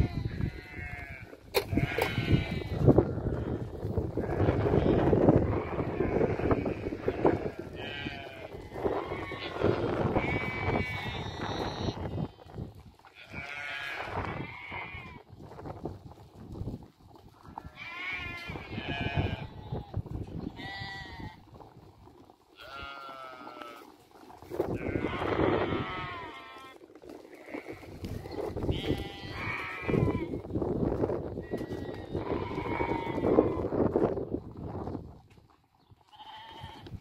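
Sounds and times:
lambs bleating: 0:00.0 - 0:03.6, 0:04.2 - 0:12.4, 0:13.2 - 0:15.2, 0:17.6 - 0:19.9, 0:20.5 - 0:21.4, 0:22.6 - 0:23.9, 0:24.7 - 0:30.4, 0:31.4 - 0:33.6, 0:36.1 - 0:37.0.

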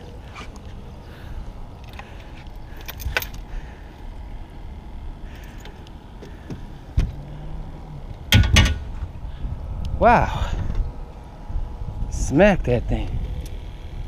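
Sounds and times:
steady low rumble: 0:00.0 - 0:14.0
heavy thump: 0:08.3 - 0:09.1.

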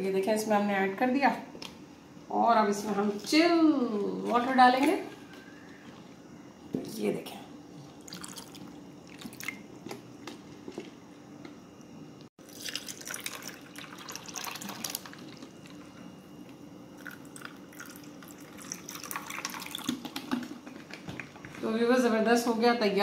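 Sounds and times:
water pouring over ice: 0:12.4 - 0:15.5, 0:17.0 - 0:20.0.

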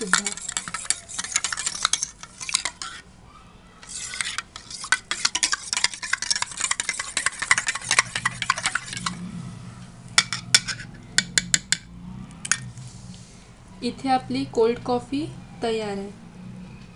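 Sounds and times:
spoon scraping and clinking bowl: 0:00.0 - 0:03.0, 0:03.8 - 0:09.2, 0:10.2 - 0:11.8
liquid swishing: 0:00.0 - 0:03.1, 0:03.8 - 0:09.4.

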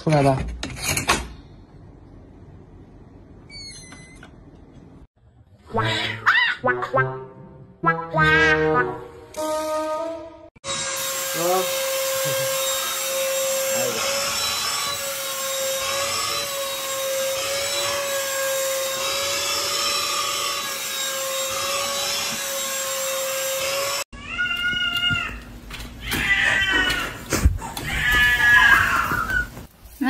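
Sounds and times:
cordless vacuum cleaner running: 0:11.0 - 0:16.2
cat meowing: 0:26.0 - 0:27.2.

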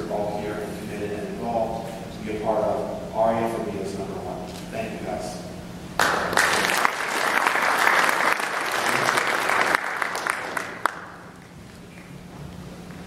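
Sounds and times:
audience applauding: 0:06.0 - 0:12.1.

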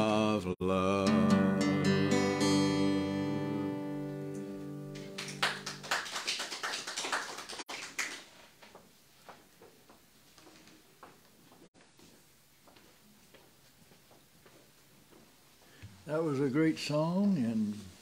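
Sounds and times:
acoustic guitar chord ringing: 0:00.8 - 0:05.8.

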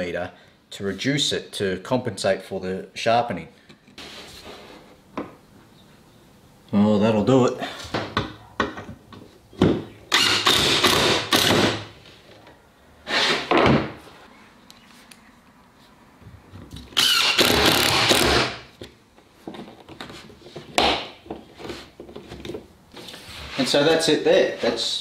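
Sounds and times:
cordless drill driving screws: 0:10.1 - 0:11.8, 0:17.0 - 0:18.6.

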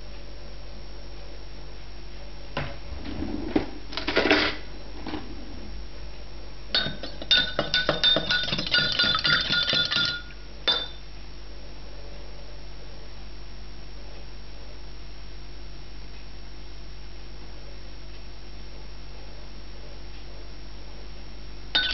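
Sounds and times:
metal spoon clinking in glass: 0:06.8 - 0:11.0.

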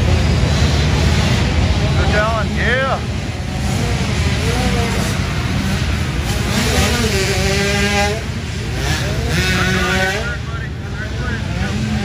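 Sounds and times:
low rumble of bikes: 0:00.0 - 0:12.0
motocross bikes revving: 0:00.0 - 0:12.0.

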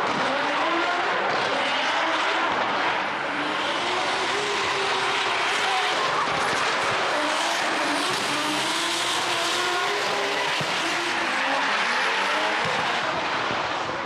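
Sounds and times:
car engines revving hard: 0:00.0 - 0:14.0
tyres squealing on asphalt: 0:03.0 - 0:14.0.

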